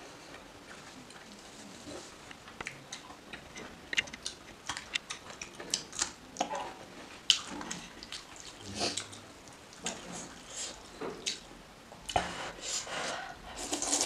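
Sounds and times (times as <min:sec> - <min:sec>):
person chewing noodles: 0:07.3 - 0:11.4, 0:13.6 - 0:14.0.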